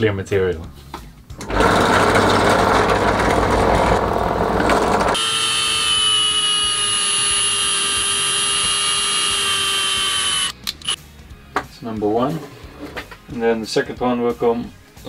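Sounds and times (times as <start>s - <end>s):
drill motor whine: 1.4s - 11.0s
drill press cutting acrylic: 1.4s - 11.0s.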